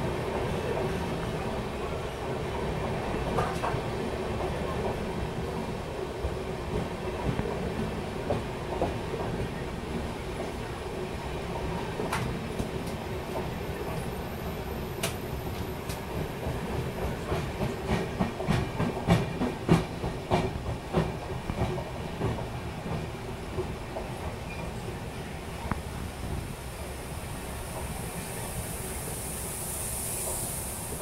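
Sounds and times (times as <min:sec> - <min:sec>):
train rumble with droning tone: 0:00.0 - 0:31.0.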